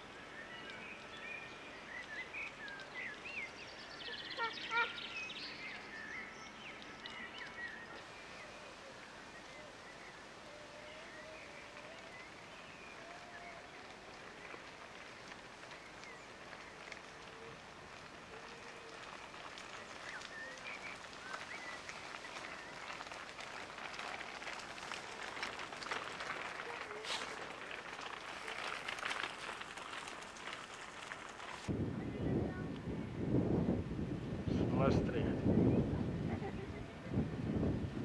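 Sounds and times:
pushchair wheels crunching gravel: 0.0s - 31.8s
footsteps on gravel: 11.6s - 31.7s.

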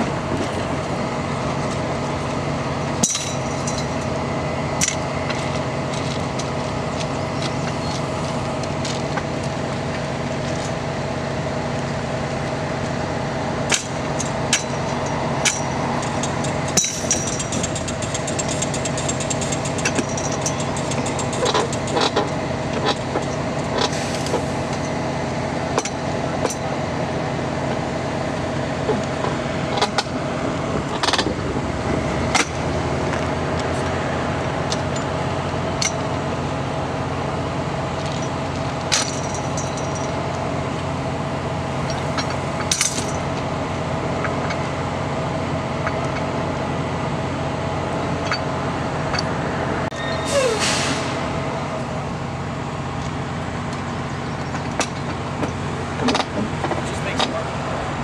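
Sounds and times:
truck engine running: 0.0s - 58.0s
steel tools clinking on metal: 3.0s - 4.1s, 13.7s - 22.2s, 38.0s - 40.2s.

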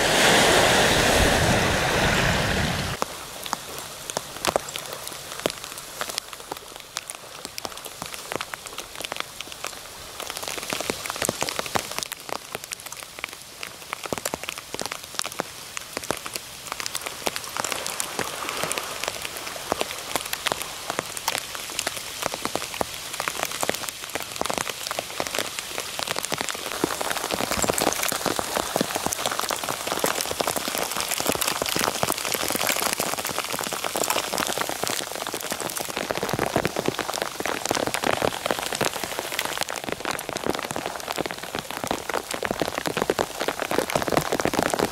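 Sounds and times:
hailstones falling on sand: 26.1s - 44.9s.

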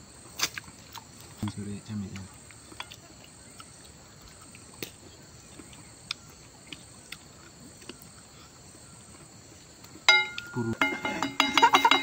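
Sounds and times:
insects chirring: 0.0s - 12.0s
chewing and lip-smacking: 2.4s - 8.2s.

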